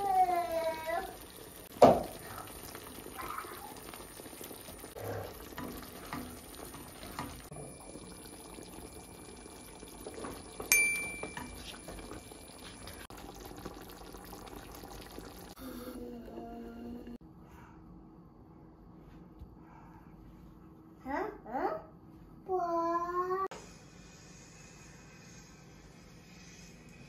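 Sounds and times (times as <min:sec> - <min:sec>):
sauce simmering in frying pan: 0:00.0 - 0:15.6
glass pan lid clinking: 0:10.7 - 0:11.6.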